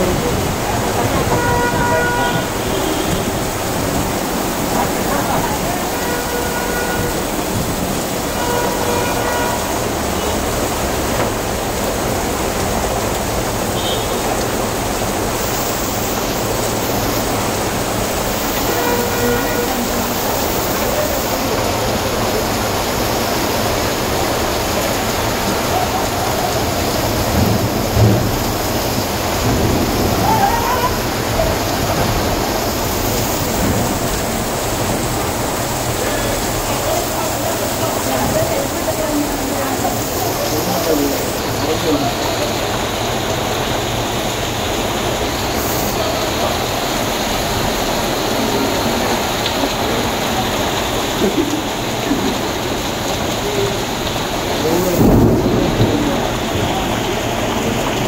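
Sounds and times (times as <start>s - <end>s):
rain falling steadily: 0.0s - 58.0s.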